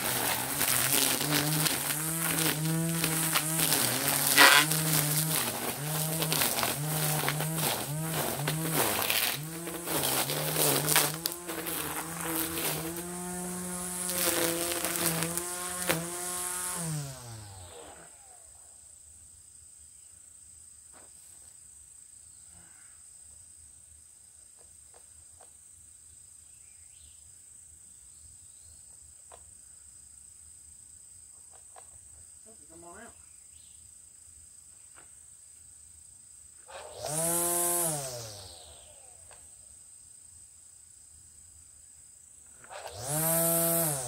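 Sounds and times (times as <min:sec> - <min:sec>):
trimmer line ticking on stems: 0:00.0 - 0:17.9
string trimmer whine: 0:00.0 - 0:18.8, 0:36.6 - 0:39.7, 0:42.4 - 0:44.0.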